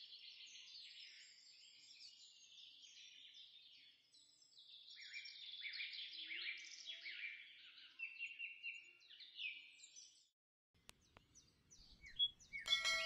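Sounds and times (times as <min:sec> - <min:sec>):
small birds chirping: 0:00.6 - 0:13.0
bell-like chime: 0:12.7 - 0:13.0.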